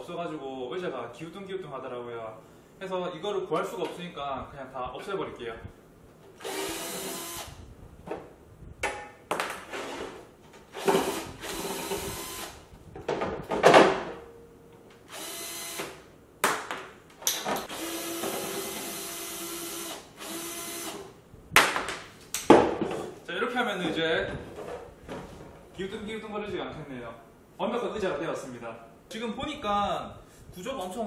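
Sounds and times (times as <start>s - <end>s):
cordless drill drilling plastic: 6.4s - 7.6s, 10.8s - 12.6s, 15.1s - 15.9s, 17.7s - 21.0s.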